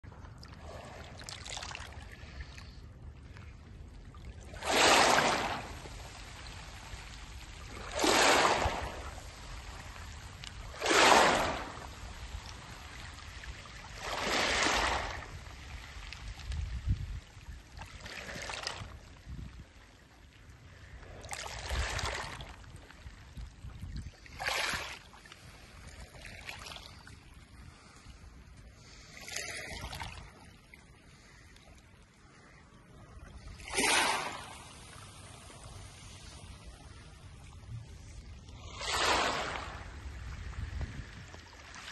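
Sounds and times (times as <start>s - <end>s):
waves washing over pebbles: 4.4s - 17.2s, 21.2s - 22.7s, 33.4s - 37.0s, 38.0s - 41.9s.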